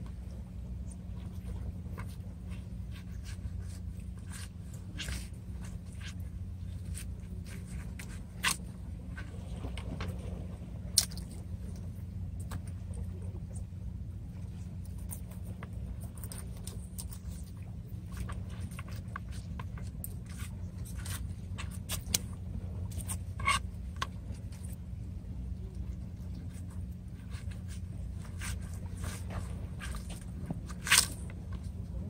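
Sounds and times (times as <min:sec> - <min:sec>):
steady low rumble: 0:00.0 - 0:32.0
knife scraping fish: 0:01.2 - 0:10.0, 0:14.8 - 0:24.8, 0:26.3 - 0:32.0.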